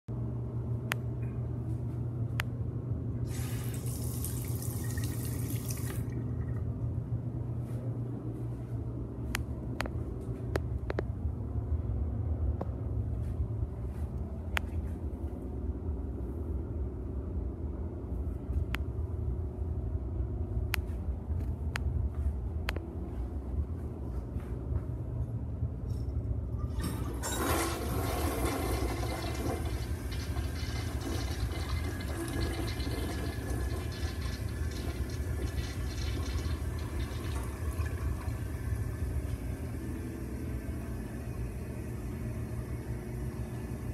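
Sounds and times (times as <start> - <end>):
steady low hum: 0.1 - 43.9
sink faucet running: 3.3 - 6.1, 27.2 - 39.4.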